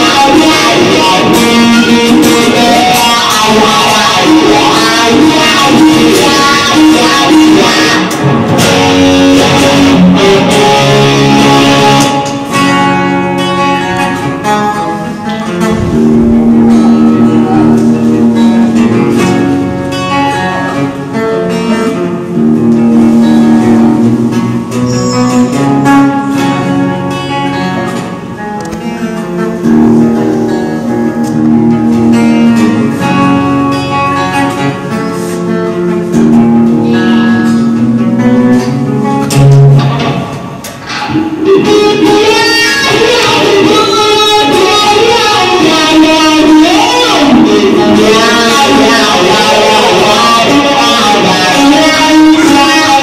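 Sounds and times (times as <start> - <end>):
electric guitar playing: 0.0 - 53.0.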